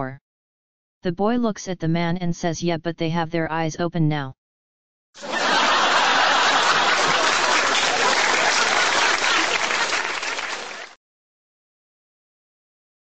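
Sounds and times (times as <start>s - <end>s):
crowd applause: 5.2s - 11.0s.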